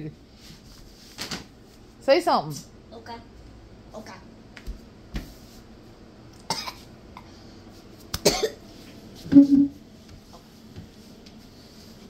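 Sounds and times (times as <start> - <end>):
boy coughing: 6.5 - 6.8, 8.2 - 8.6.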